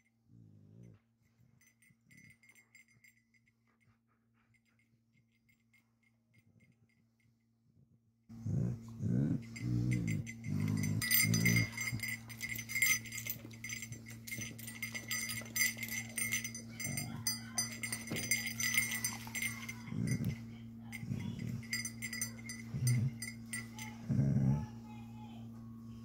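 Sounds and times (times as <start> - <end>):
dog whining: 8.3 - 13.9, 21.0 - 24.8
dog tags jingling: 9.0 - 24.5.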